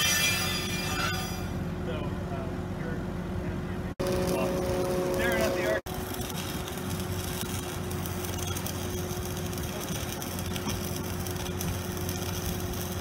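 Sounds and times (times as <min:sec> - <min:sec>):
engine droning: 0:01.5 - 0:13.0
arc welding crackle: 0:04.0 - 0:13.0.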